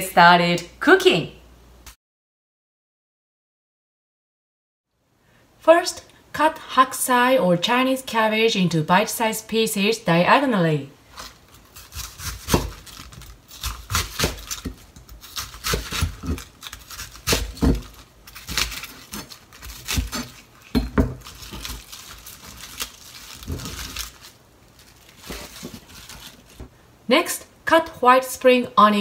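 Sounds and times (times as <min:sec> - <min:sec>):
knife slicing cabbage: 0:11.1 - 0:24.4, 0:25.0 - 0:26.6.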